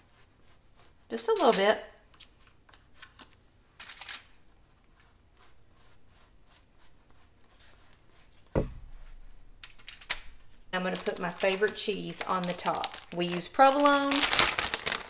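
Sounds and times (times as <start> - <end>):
knife scraping butter on bun: 0.0 - 3.1, 4.5 - 8.5
bun thump on baking sheet: 8.6 - 9.4.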